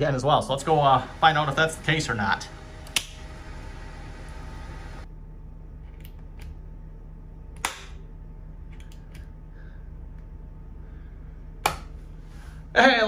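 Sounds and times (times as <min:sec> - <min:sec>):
low steady hum: 0:00.0 - 0:13.0
light switch clicking: 0:02.8 - 0:03.2.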